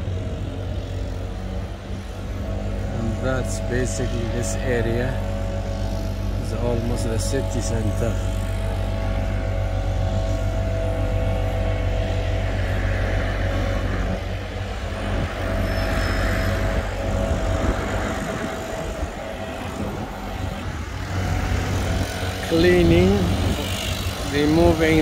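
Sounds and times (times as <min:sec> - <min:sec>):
engine droning: 0:00.0 - 0:25.0
outdoor noise: 0:00.0 - 0:25.0.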